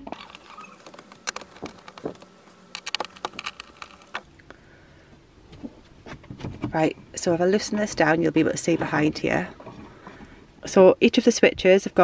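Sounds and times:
screwdriver clicking and scraping: 0:00.0 - 0:04.3.

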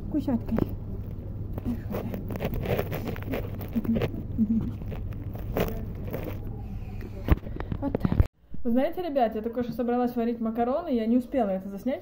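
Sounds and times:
steady low rumble: 0:00.0 - 0:08.8
cat crunching food: 0:01.0 - 0:06.5.

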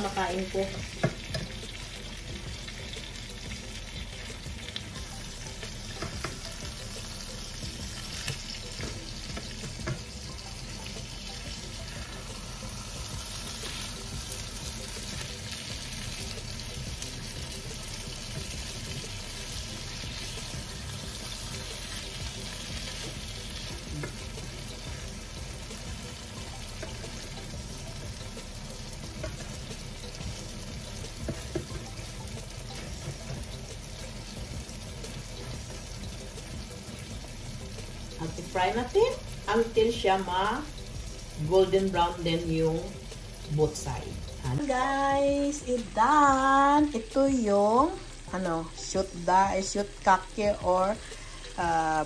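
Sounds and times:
patties sizzling in oil: 0:00.0 - 0:52.0
spatula tapping and scraping pan: 0:31.2 - 0:31.9.

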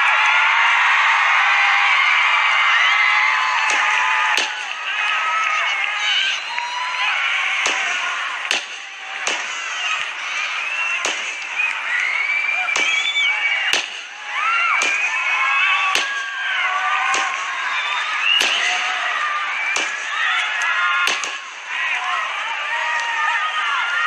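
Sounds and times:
crowd screaming: 0:00.0 - 0:24.0
sharp loud snaps: 0:03.6 - 0:04.8, 0:07.6 - 0:10.1, 0:12.8 - 0:14.1, 0:17.1 - 0:17.6, 0:18.3 - 0:18.7, 0:19.7 - 0:21.5.

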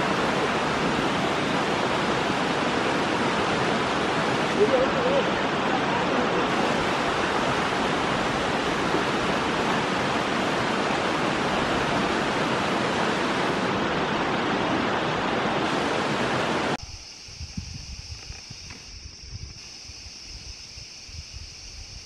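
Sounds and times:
loud rushing hiss: 0:15.6 - 0:22.0.

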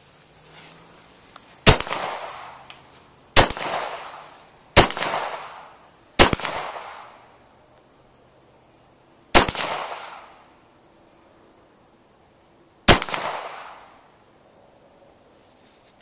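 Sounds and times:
pistol shots echoing: 0:01.6 - 0:02.4, 0:03.4 - 0:04.2, 0:04.8 - 0:07.2, 0:09.3 - 0:10.3, 0:12.9 - 0:13.9.

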